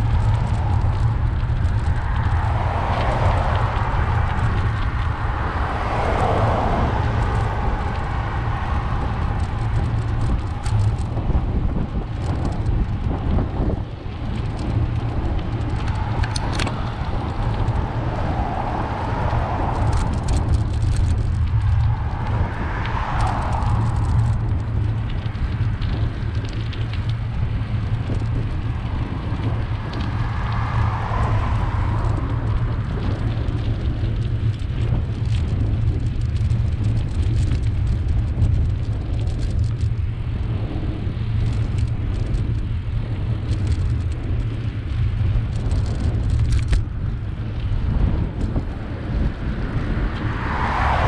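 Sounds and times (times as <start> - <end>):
vehicle passing: 0.0 - 12.2, 13.9 - 36.6, 49.3 - 51.0
bicycle clicks and rattles: 0.0 - 51.0
wind rumble on microphone: 0.0 - 51.0.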